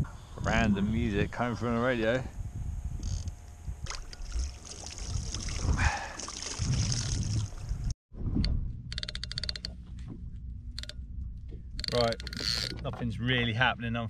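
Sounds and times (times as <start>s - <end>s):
rapid mechanical clicking: 8.4s - 9.8s, 10.7s - 11.0s, 11.7s - 13.0s.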